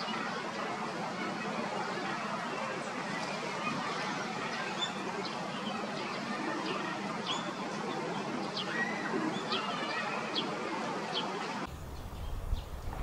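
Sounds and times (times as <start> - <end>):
shallow stream running: 0.0 - 13.0
small birds chirping: 4.4 - 10.5, 11.1 - 13.0.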